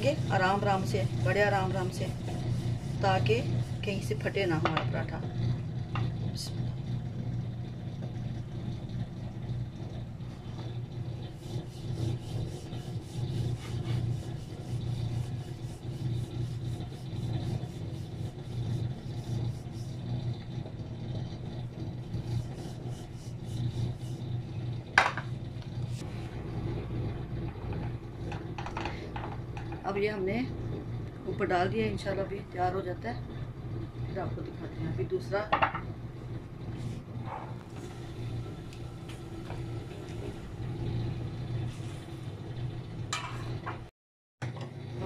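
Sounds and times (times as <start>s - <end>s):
rolling pin rubbing on dough: 0.0s - 4.7s, 11.2s - 20.2s, 22.0s - 24.4s
steady low hum: 0.0s - 43.8s.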